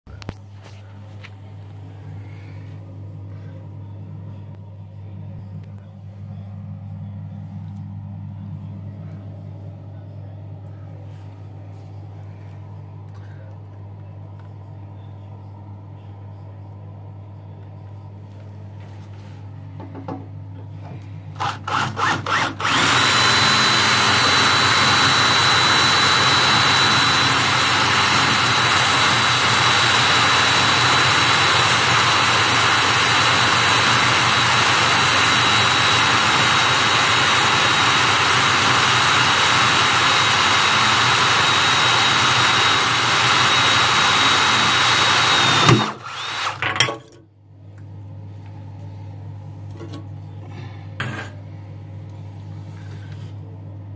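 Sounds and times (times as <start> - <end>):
electric drill boring through metal: 21.4 - 46.6.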